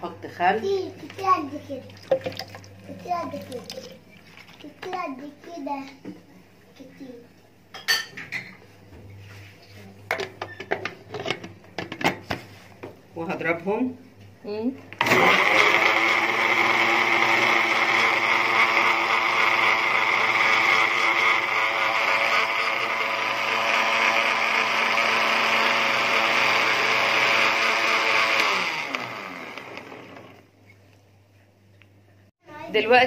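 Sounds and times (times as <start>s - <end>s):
blender running: 15.0s - 30.5s.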